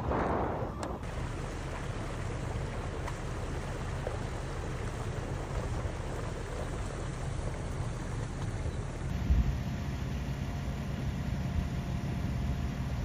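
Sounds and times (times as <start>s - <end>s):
water rushing into storm drain: 0.0s - 9.4s.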